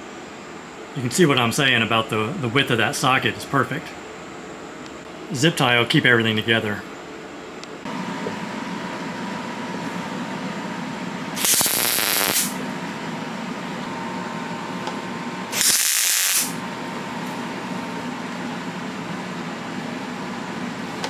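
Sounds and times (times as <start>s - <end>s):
steady hum: 0.0s - 21.0s
welder welding: 11.4s - 12.6s, 15.5s - 16.6s.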